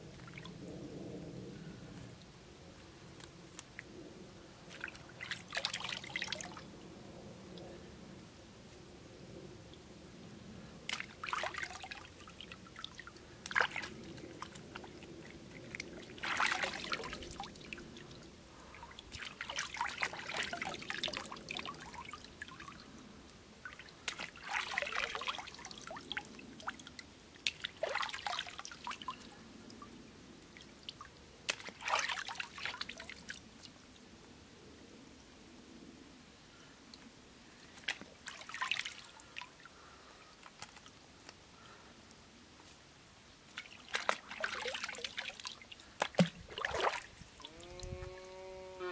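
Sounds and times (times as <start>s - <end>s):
faint water trickle: 1.6s - 34.2s, 36.4s - 48.9s
water splashing and dripping: 4.7s - 6.7s, 10.9s - 33.8s, 37.7s - 41.4s, 43.4s - 48.3s.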